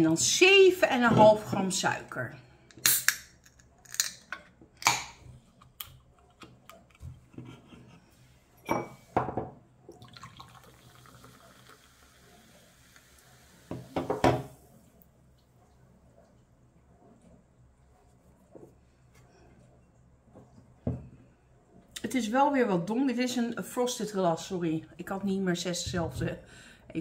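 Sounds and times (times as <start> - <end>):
can opening hiss: 2.7 - 4.0
glass knocking on tabletop: 8.7 - 9.6, 13.7 - 14.5
carbonated drink fizzing: 9.9 - 14.2
drink pouring into glass: 9.9 - 14.5.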